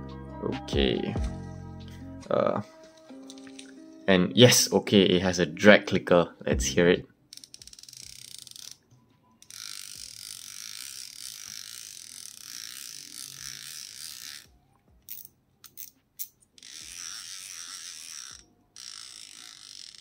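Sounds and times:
fishing reel drag clicking: 7.3 - 8.8, 9.4 - 14.5, 15.1 - 20.0.

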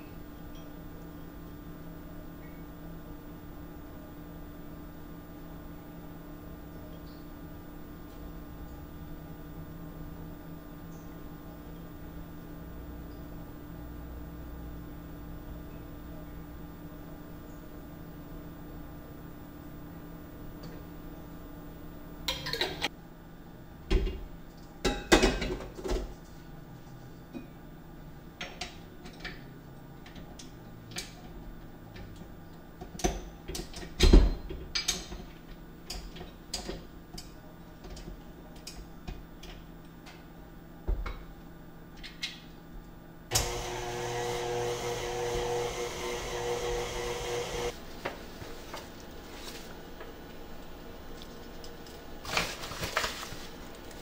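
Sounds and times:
kitchenware knocks and clinks: 24.9 - 26.0
stand mixer humming whine: 43.3 - 48.0.

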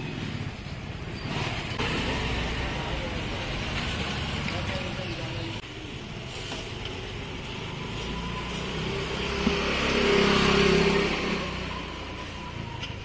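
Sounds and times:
street traffic noise: 0.0 - 13.0
vehicle engine passing close: 6.8 - 12.8.

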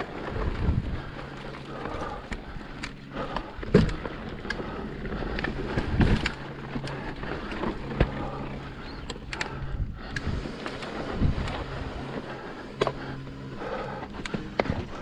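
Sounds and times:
bike clicks and rattles: 0.0 - 15.0
wind on microphone: 9.6 - 12.1.

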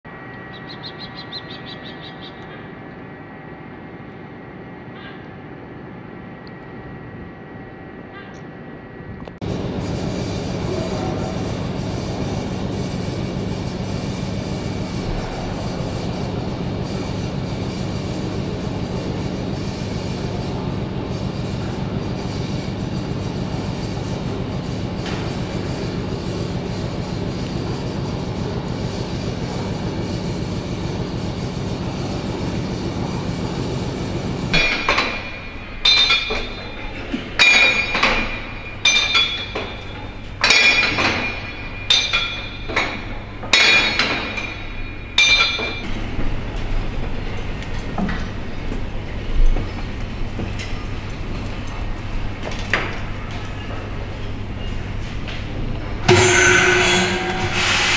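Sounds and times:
sharp metallic clinks: 34.6 - 45.8.

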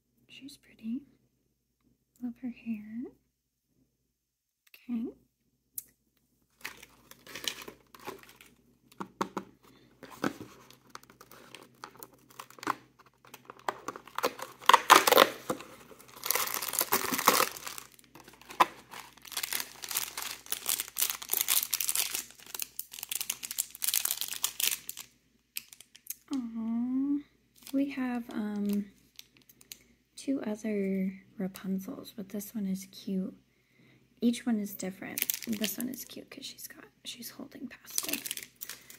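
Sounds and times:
toy wrapping crinkling and tearing: 6.5 - 26.3, 27.6 - 29.8, 35.0 - 36.2, 37.8 - 38.9.

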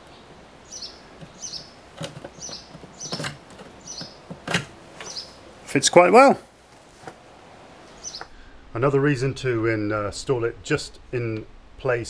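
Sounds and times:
small bird chirping: 0.0 - 4.4, 5.0 - 5.4, 7.9 - 8.4
clicks on plastic casing: 2.0 - 5.1.

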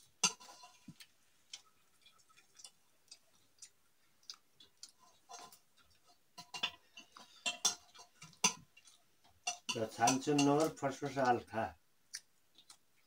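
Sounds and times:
fingers clinking on metal plates: 5.1 - 11.4.

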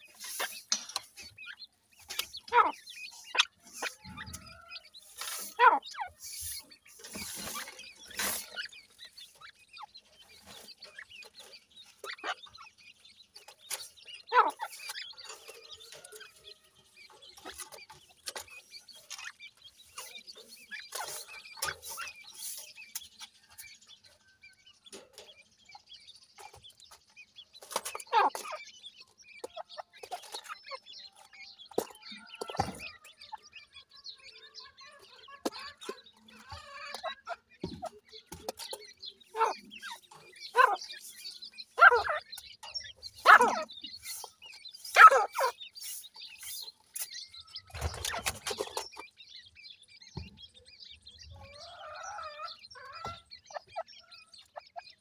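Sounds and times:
bird clucking: 0.0 - 55.0
chicks peeping: 0.0 - 55.0.

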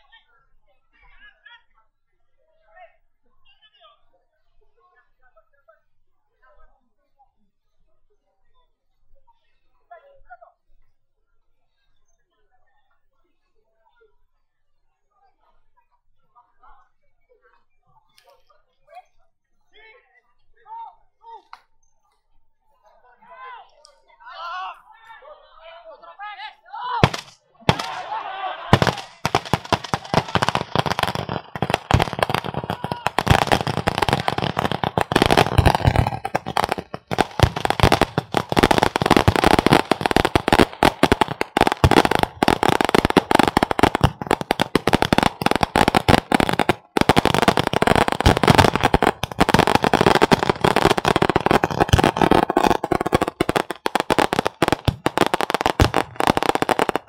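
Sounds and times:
firecrackers crackling: 27.0 - 57.0.

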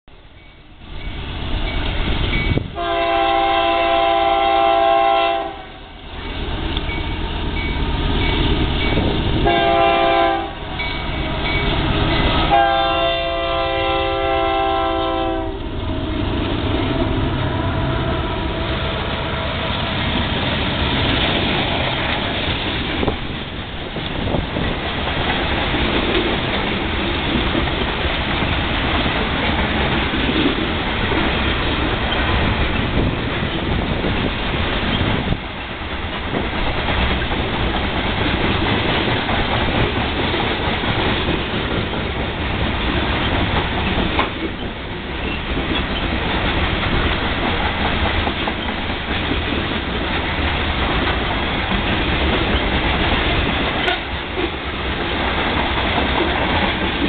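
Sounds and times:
diesel locomotive engine rumbling: 0.1 - 57.0
locomotive air horn blasts: 2.8 - 6.0, 9.4 - 10.8, 12.4 - 16.2, 16.9 - 20.0, 53.8 - 54.1
freight cars rumbling past: 6.2 - 57.0.

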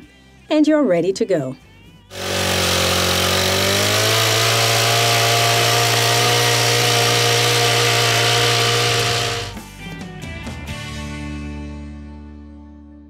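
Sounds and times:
tiller engine running: 2.1 - 9.6.

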